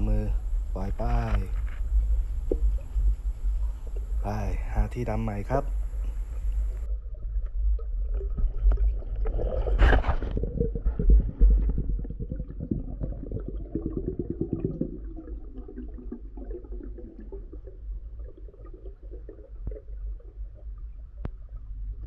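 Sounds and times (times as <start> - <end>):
low underwater rumble: 0.0 - 22.0
crackling clicks: 6.0 - 6.9.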